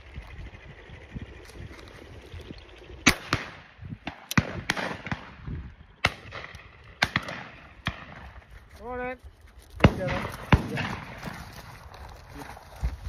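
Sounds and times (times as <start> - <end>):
shotgun shots echoing: 3.0 - 8.4, 9.8 - 11.4.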